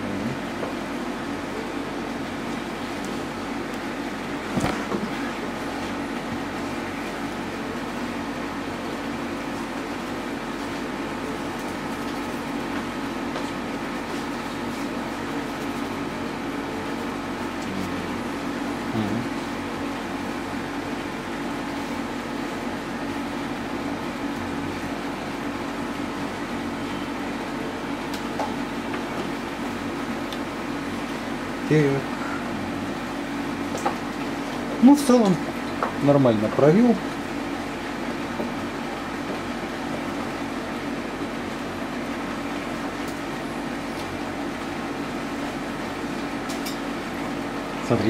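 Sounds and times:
steady background hum and hiss: 0:00.0 - 0:48.0.

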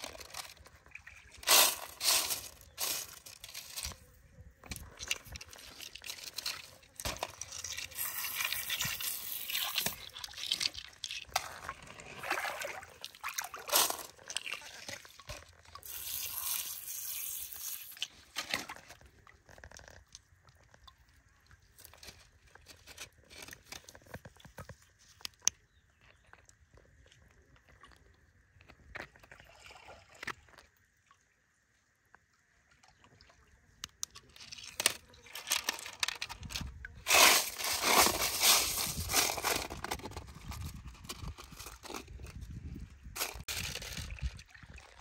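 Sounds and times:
pebbles clicking and scraping: 0:00.0 - 0:20.8, 0:21.6 - 0:29.4, 0:33.8 - 0:44.7
water jet spraying on gravel: 0:01.4 - 0:03.8, 0:07.7 - 0:10.6, 0:15.8 - 0:18.0, 0:37.1 - 0:39.4.

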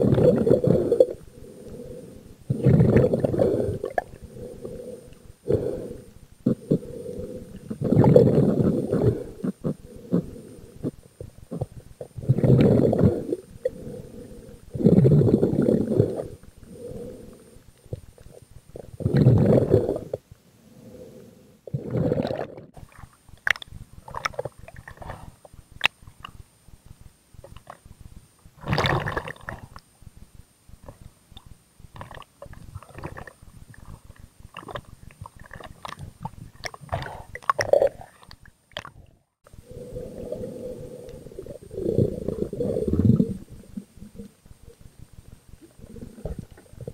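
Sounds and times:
water sloshing and gurgling: 0:21.7 - 0:26.4, 0:28.6 - 0:29.9, 0:30.8 - 0:44.9
rushes of water: 0:28.6 - 0:29.8.

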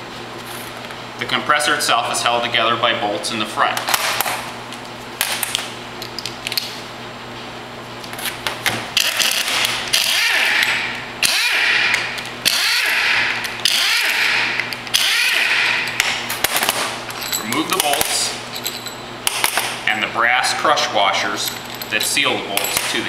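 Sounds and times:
power driver running: 0:08.0 - 0:23.0.

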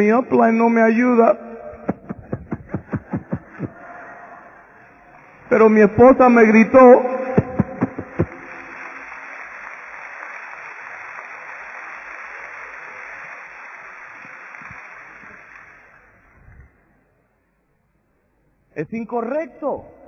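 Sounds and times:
audience crowd noise: 0:07.0 - 0:16.4.

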